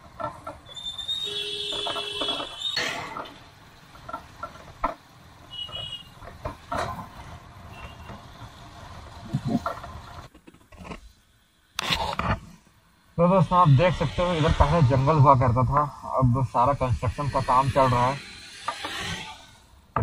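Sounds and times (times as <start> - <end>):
knocks and clatter: 0.0 - 0.7, 1.6 - 8.6
vehicle horn honking: 1.1 - 2.7, 5.5 - 6.1.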